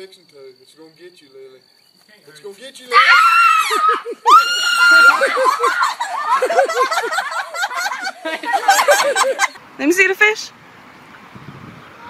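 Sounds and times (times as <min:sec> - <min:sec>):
girl screaming: 0:02.9 - 0:06.0
girl laughing: 0:03.5 - 0:09.6.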